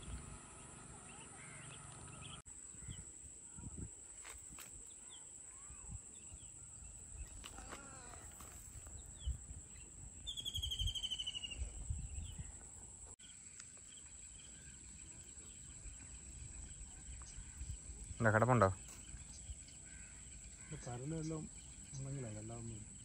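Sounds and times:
small birds chirping: 0.0s - 23.0s
bird trilling: 10.2s - 11.7s.

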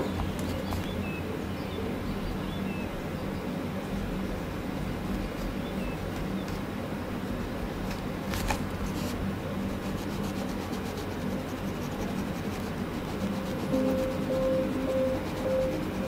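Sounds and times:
low background hum: 0.0s - 16.0s
pencil scratching on paper: 8.4s - 16.0s.

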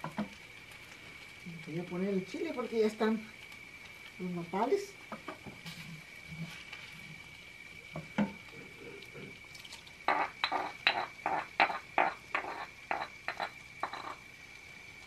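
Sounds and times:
stone bowl clinks and knocks: 10.1s - 14.2s.

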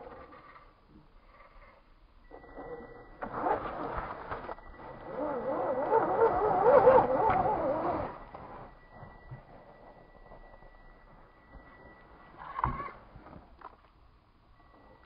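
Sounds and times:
electric motor whining: 2.3s - 8.7s.

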